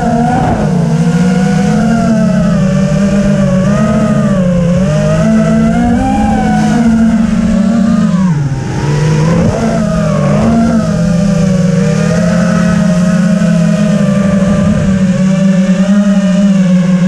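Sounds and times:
quadcopter motors whining: 0:00.0 - 0:17.0.

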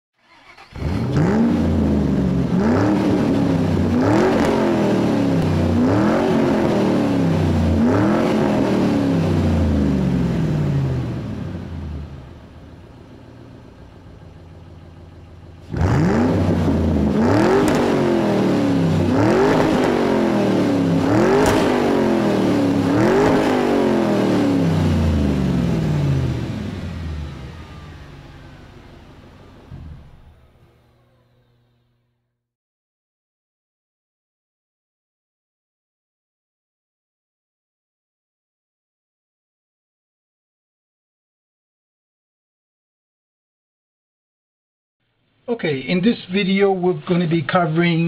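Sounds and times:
car engine revving: 0:00.2 - 0:31.6.

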